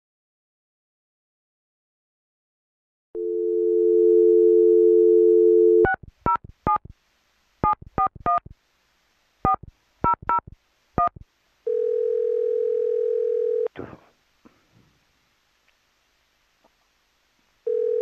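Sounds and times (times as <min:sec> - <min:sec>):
telephone dial tone: 0:03.2 - 0:05.9, 0:11.7 - 0:13.7, 0:17.7 - 0:18.0.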